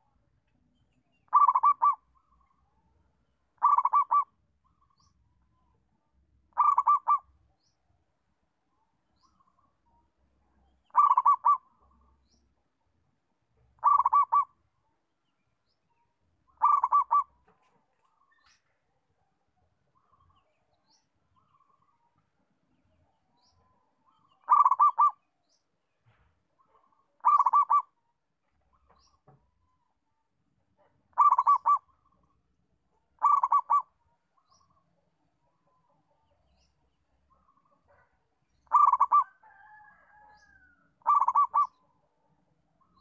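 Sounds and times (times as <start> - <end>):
dove cooing: 1.3 - 2.0, 3.6 - 4.3, 6.5 - 7.3, 10.9 - 11.6, 13.8 - 14.5, 16.6 - 17.4, 24.4 - 25.2, 27.2 - 27.9, 31.1 - 31.9, 33.2 - 33.9, 38.7 - 41.8.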